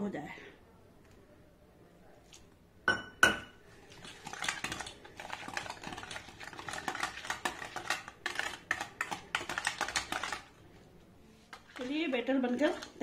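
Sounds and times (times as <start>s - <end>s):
whisk clinking on steel bowl: 2.9s - 10.5s
whisk rattling in steel bowl: 3.9s - 10.5s, 11.5s - 13.0s.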